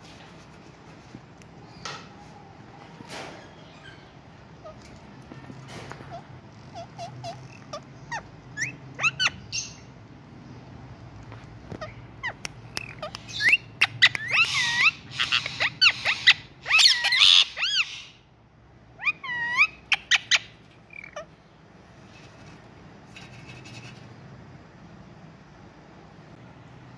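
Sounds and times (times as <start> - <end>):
parakeets chirping and squawking: 3.4 - 9.9, 11.6 - 18.3, 18.9 - 22.6.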